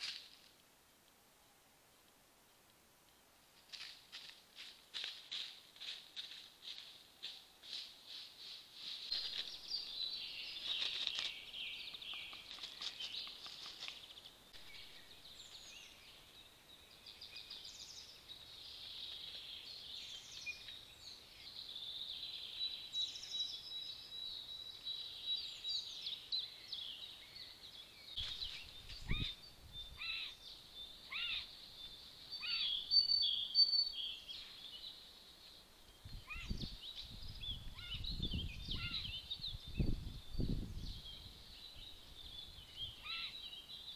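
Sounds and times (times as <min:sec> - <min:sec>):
songbirds singing and calling: 0:06.4 - 0:43.9.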